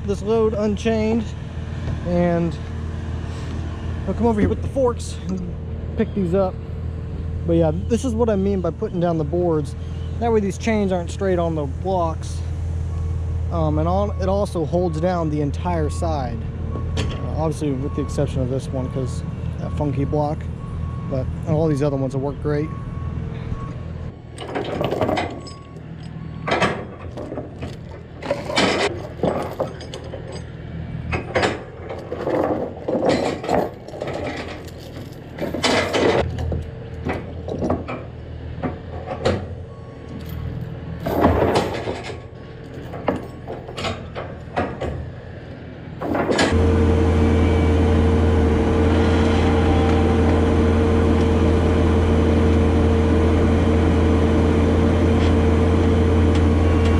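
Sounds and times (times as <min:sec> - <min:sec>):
diesel loader engine running: 0:00.0 - 0:56.9
chains clanking and rattling: 0:24.3 - 0:38.1, 0:40.1 - 0:44.9.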